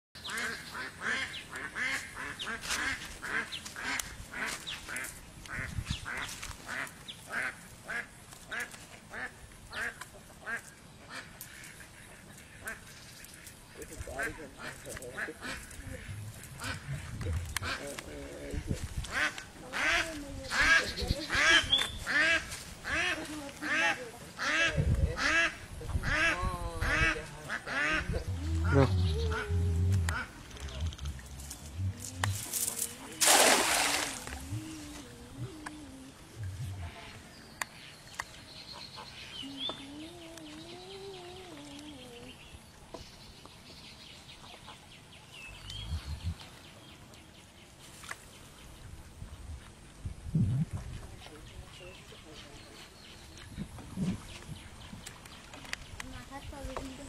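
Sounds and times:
ducks quacking: 0.2s - 32.4s.

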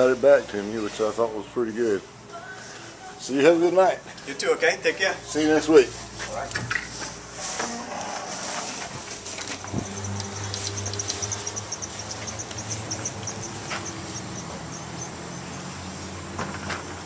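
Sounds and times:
high insect trill: 9.3s - 16.3s
insects chirping: 9.4s - 17.0s.

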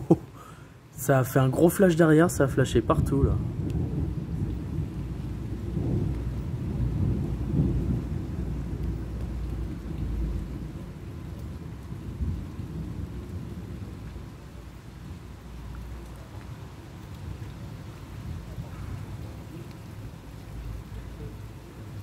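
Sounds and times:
thunder rolling and rumbling: 2.4s - 15.2s.

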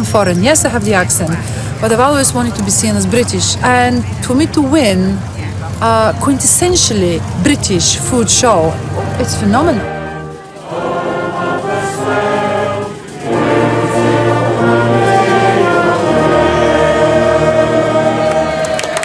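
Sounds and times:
crowd singing together: 7.7s - 19.0s
brass band playing: 8.8s - 19.0s.

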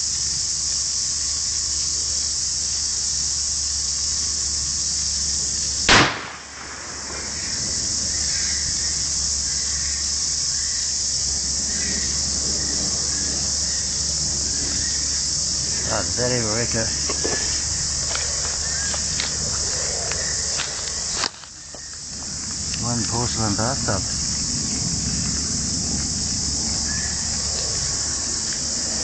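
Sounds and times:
high-pitched insect chorus: 0.0s - 29.0s
shotgun shot: 5.9s - 7.3s.

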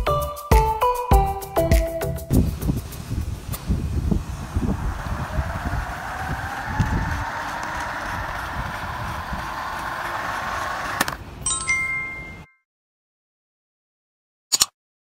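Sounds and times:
plastic wheels rolling on tile: 2.7s - 11.2s
small motor whining: 3.5s - 11.2s
bell-like ding chime: 11.4s - 12.6s
click: 14.5s - 14.8s.

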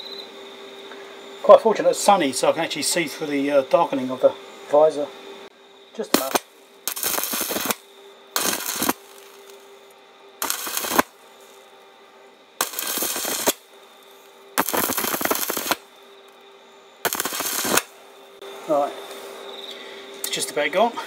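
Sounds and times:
faint steady hum: 0.0s - 21.0s
welding arc crackling: 6.0s - 7.8s, 8.4s - 9.8s, 10.4s - 11.7s, 12.6s - 16.0s, 17.0s - 18.2s.

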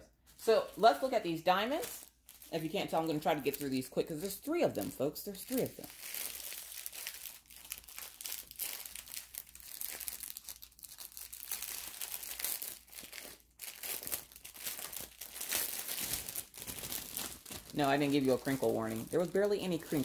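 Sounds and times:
plastic packaging crinkling: 0.3s - 20.0s.

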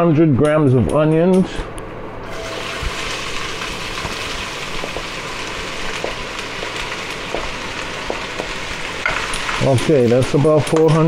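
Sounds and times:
onions sizzling in oil: 2.3s - 10.8s.

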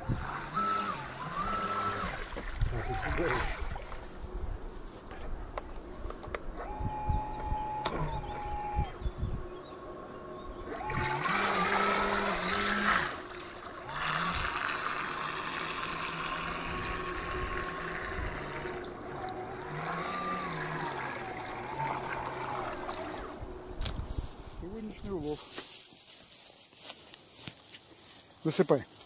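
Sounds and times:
electric motors whining: 0.0s - 25.4s
water splashing at hull: 1.1s - 4.1s.

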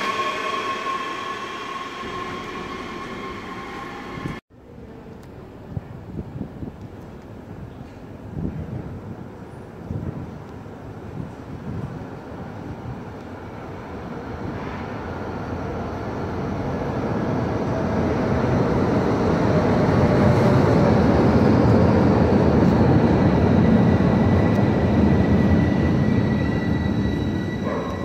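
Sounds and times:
thin high squeal: 0.0s - 4.4s
train wheels rumbling on rails: 7.8s - 28.0s.

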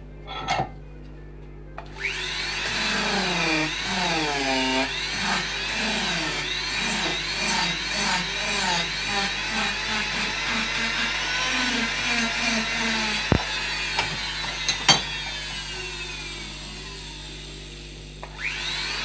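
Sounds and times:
power carving tool grinding wood: 1.8s - 19.0s.

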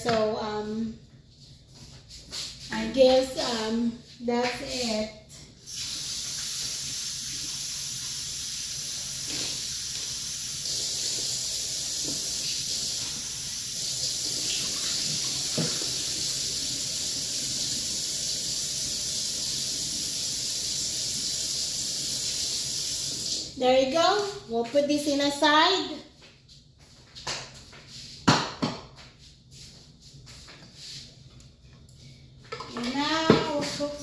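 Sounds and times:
tap running into bowl: 15.0s - 16.0s.

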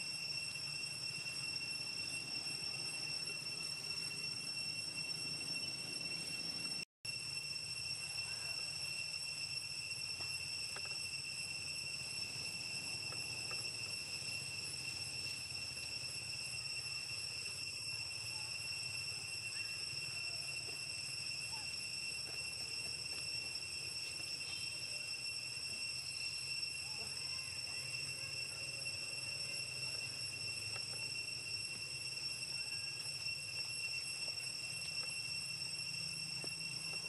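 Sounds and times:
shrill insect drone: 0.0s - 37.0s.

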